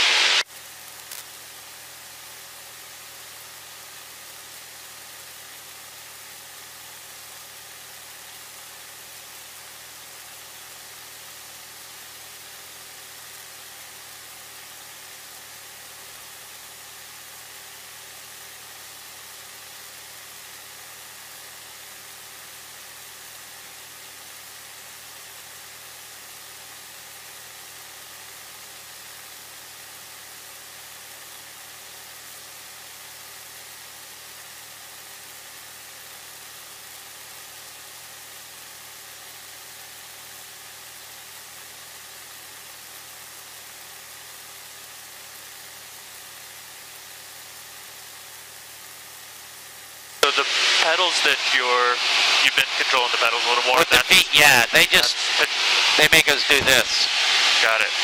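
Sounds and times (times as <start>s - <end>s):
cockpit hiss: 0.0s - 1.3s, 50.2s - 58.0s.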